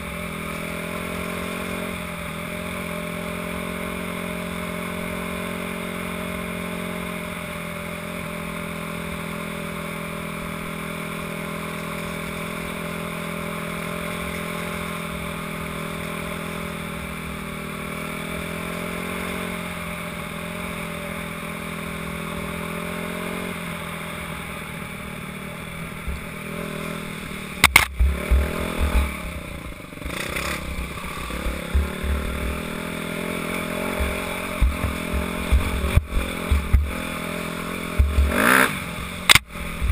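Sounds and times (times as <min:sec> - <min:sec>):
dirt bike engine running: 0:00.0 - 0:39.9
sharp knock: 0:27.6 - 0:28.5
bike thumping on rough trail: 0:27.6 - 0:39.9.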